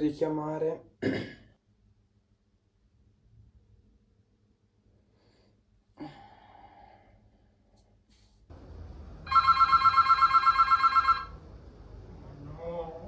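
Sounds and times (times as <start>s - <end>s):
telephone ringing: 9.3s - 11.4s.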